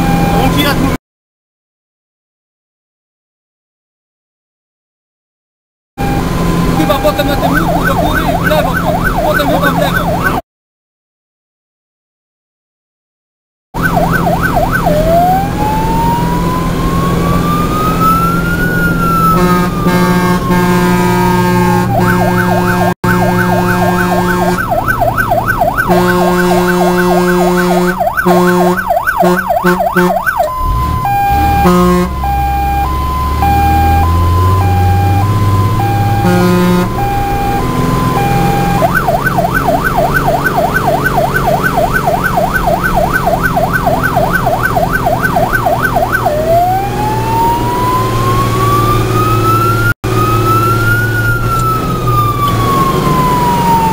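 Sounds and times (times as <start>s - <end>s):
fire truck siren: 0.0s - 1.0s, 6.0s - 10.4s, 13.8s - 53.9s
truck engine: 0.0s - 1.0s, 6.0s - 10.4s, 13.8s - 53.9s.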